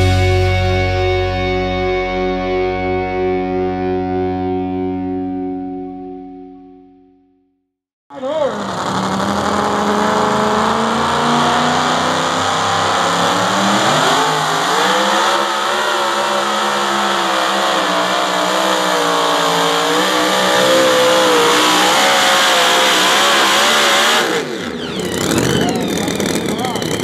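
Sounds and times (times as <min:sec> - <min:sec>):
supercharged truck engine revving: 0:08.1 - 0:27.0.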